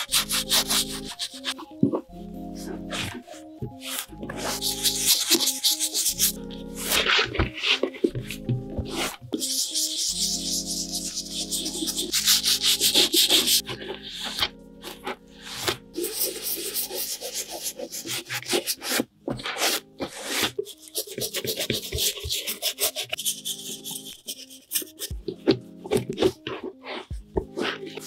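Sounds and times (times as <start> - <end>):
brush scrubbing leather: 0.0 - 1.7, 3.8 - 7.9, 8.9 - 14.4, 15.4 - 25.2
soft background music: 0.0 - 28.0.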